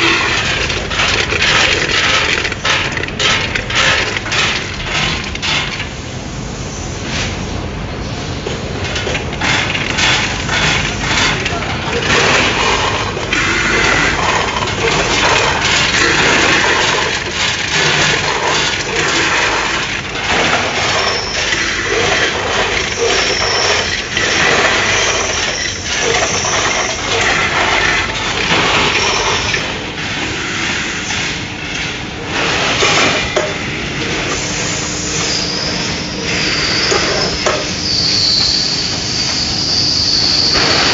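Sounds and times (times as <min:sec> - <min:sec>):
candy clattering over steel pans: 0:00.0 - 0:05.8, 0:08.9 - 0:29.8
hopper gates clacking: 0:00.0 - 0:06.0, 0:08.4 - 0:39.4, 0:40.1 - 0:40.9.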